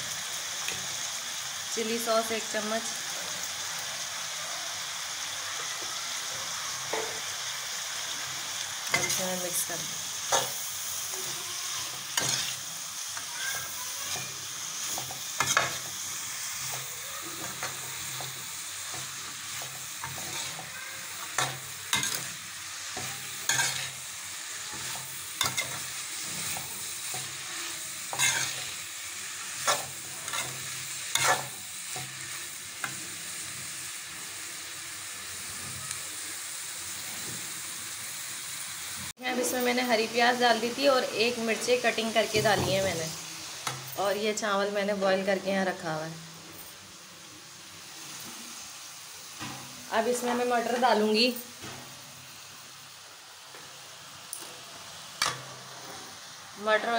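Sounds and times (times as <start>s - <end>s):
food sizzling in a wok: 0.0s - 56.9s
metal spatula scraping pan: 12.2s - 12.6s, 13.5s - 15.9s, 16.6s - 22.4s, 23.0s - 24.0s, 24.7s - 28.8s, 29.6s - 32.1s.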